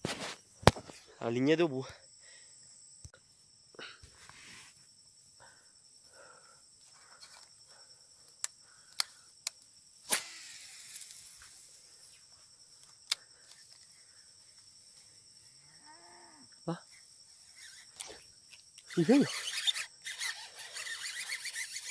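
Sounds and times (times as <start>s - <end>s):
insects chirring: 0.0s - 21.9s
sharp clicks: 8.3s - 11.2s.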